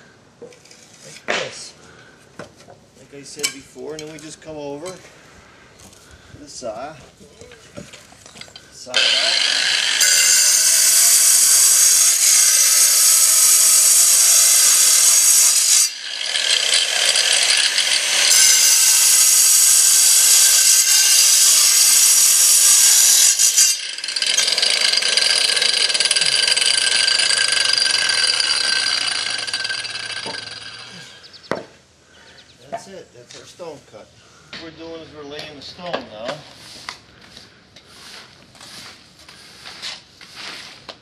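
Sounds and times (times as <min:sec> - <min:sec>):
angle grinder cutting stone: 0:08.9 - 0:31.4.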